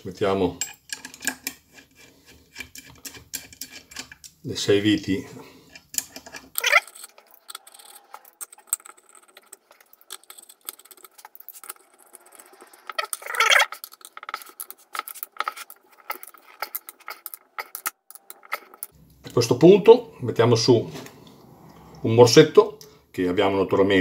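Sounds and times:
metal screws clicking: 0.6s - 4.4s, 5.6s - 19.0s
metal rattling: 5.7s - 19.0s.

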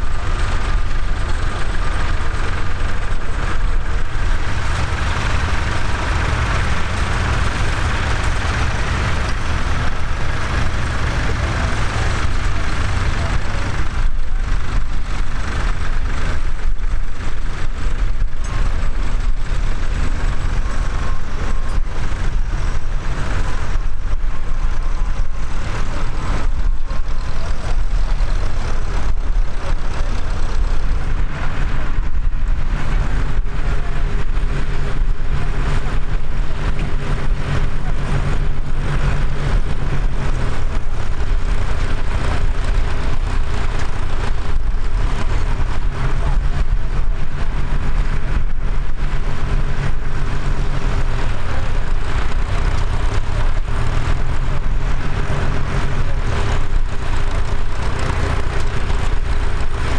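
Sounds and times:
nearer tractor engine hum: 0.0s - 59.9s
tractor engines rumbling: 0.0s - 59.9s.

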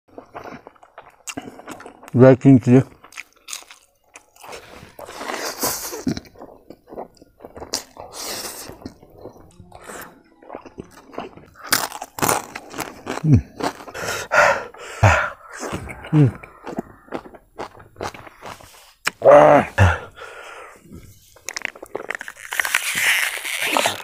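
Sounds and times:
wet chewing and smacking: 0.1s - 19.2s, 21.0s - 24.0s
noodles slurped: 4.4s - 9.1s, 21.3s - 24.0s
breaths through pursed lips: 19.9s - 21.4s.

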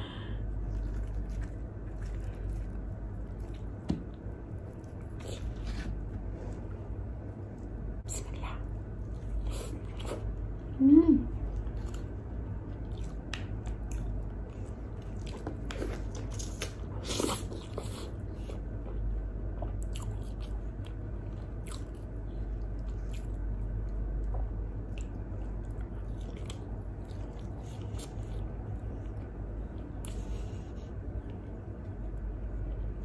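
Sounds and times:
chewing and biting food: 0.5s - 6.8s, 11.6s - 31.5s.

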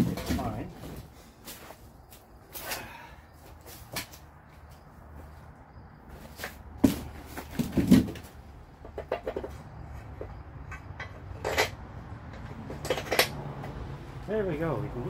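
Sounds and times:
metal parts clinking and knocking: 10.2s - 13.4s.

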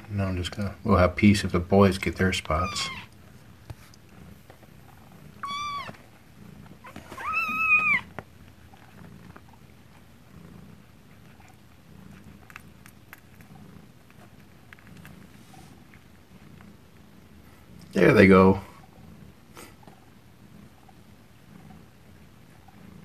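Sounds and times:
cat purring: 0.0s - 23.0s
kittens mewing: 2.5s - 3.2s, 5.3s - 6.0s, 6.8s - 8.1s.

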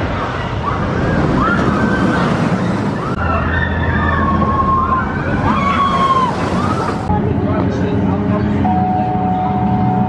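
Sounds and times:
people screaming on a ride: 0.0s - 7.1s
loud steady rushing noise: 0.0s - 10.0s.

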